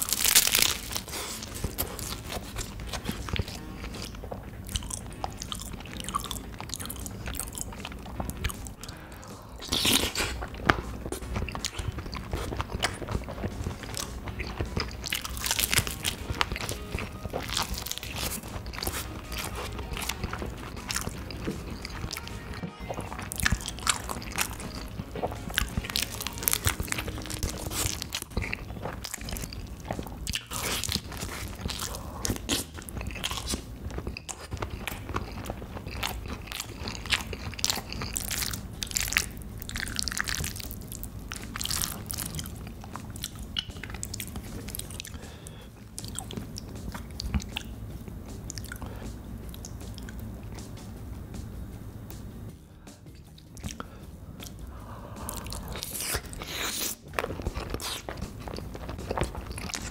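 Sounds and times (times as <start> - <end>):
person chewing food: 0.0 - 51.0, 52.0 - 59.9
music: 0.0 - 59.9.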